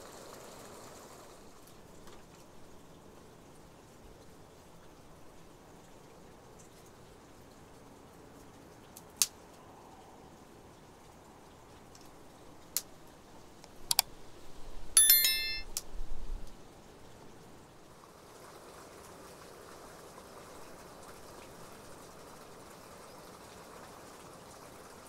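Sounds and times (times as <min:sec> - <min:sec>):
sharp clicks: 0:13.6 - 0:14.1
brief metallic ring: 0:15.0 - 0:15.7.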